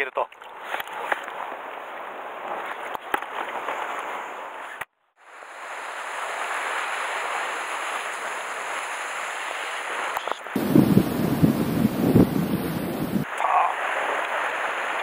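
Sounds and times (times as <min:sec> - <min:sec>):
surf washing against rocks: 0:05.3 - 0:15.0.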